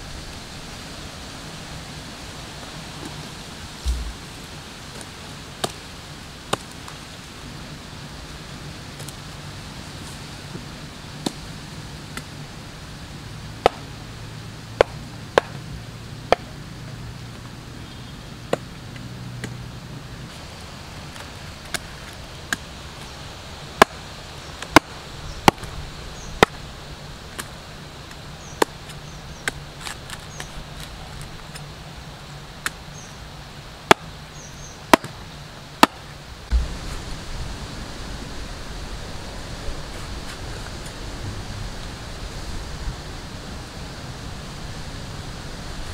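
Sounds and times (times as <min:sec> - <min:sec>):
knife chopping fruit husks: 0:03.8 - 0:04.2
steady low rushing noise: 0:03.8 - 0:04.8, 0:36.5 - 0:39.6.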